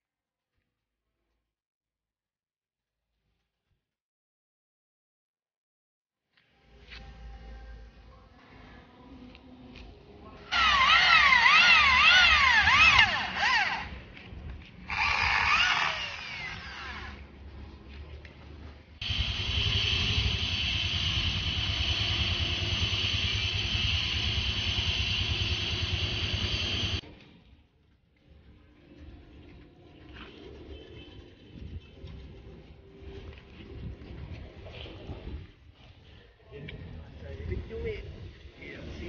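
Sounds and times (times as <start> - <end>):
electric drill boring into metal: 10.5 - 13.9, 14.9 - 17.2, 19.0 - 27.0.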